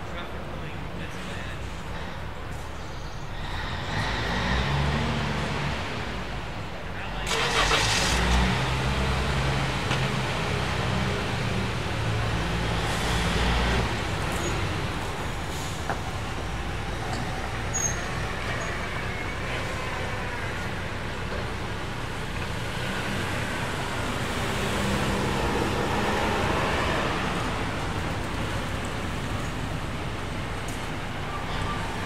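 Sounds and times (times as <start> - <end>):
heavy truck engine at low revs: 1.6 - 32.0.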